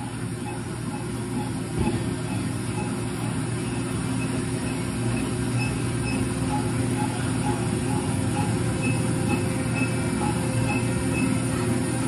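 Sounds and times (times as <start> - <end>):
engine droning steadily: 0.0 - 12.0.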